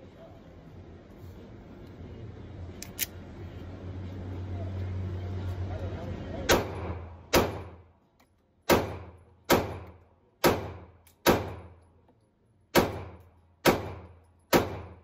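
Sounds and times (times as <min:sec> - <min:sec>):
pistol shots echoing indoors: 0:12.7 - 0:15.0.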